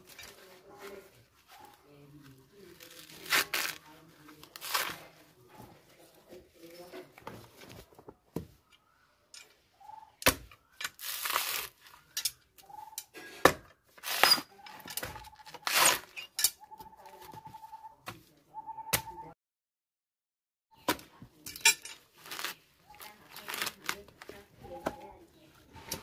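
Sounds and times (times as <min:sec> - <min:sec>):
husk tearing rasping: 0:02.6 - 0:05.2, 0:10.9 - 0:12.2, 0:22.1 - 0:24.3.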